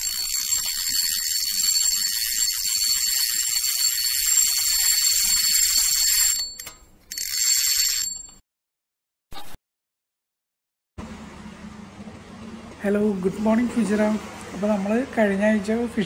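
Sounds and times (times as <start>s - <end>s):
steady ringing tones: 0.0s - 8.4s.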